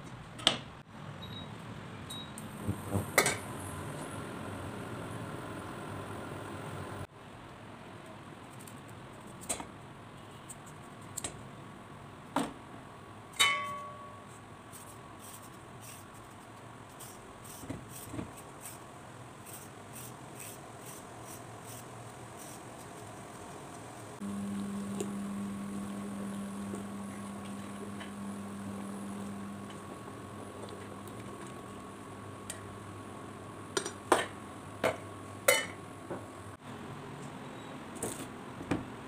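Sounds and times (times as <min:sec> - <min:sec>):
induction cooker hum: 0:02.1 - 0:07.1, 0:23.9 - 0:36.5
peeler scraping carrot: 0:19.4 - 0:23.0.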